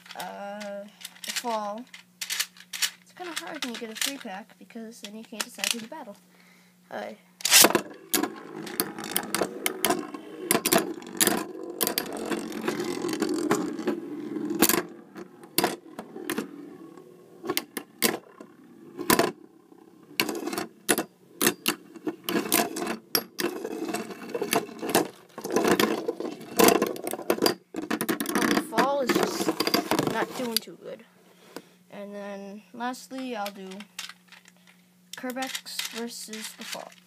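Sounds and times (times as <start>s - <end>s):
spinning tops clacking: 7.4s - 27.6s
spinning tops whirring and scraping: 7.4s - 30.7s, 33.1s - 37.0s.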